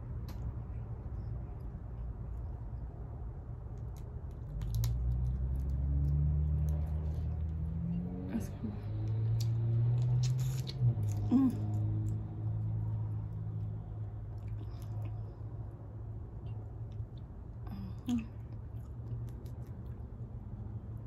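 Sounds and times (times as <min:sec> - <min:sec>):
person chewing food: 0:09.0 - 0:12.2, 0:13.6 - 0:20.7
wet mouth clicks and smacks: 0:09.0 - 0:12.2.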